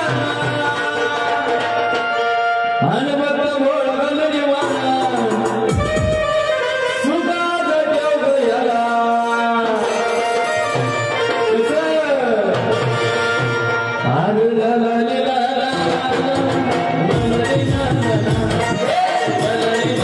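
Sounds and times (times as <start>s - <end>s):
man singing: 0.0s - 10.4s, 13.9s - 20.0s
hand drum: 5.0s - 6.5s, 15.8s - 20.0s.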